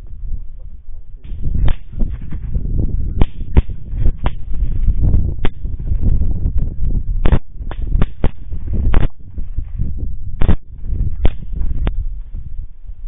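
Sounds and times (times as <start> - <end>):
microphone handling noise: 0.0 - 13.0
wind rumble: 0.0 - 13.0
rifle shots: 1.2 - 2.5, 3.2 - 4.8, 5.4 - 6.0, 7.2 - 9.7, 10.4 - 11.9.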